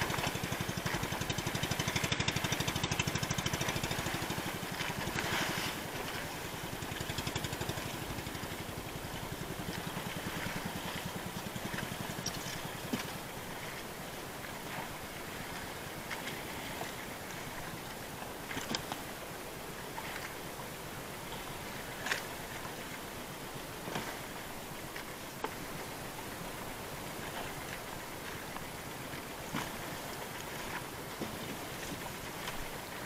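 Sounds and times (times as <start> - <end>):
boat engine chugging: 0.0 - 18.9.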